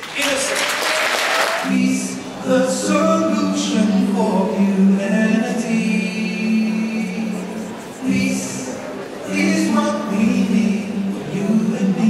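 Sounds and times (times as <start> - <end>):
applause: 0.0 - 1.7
man singing into microphone: 0.2 - 12.0.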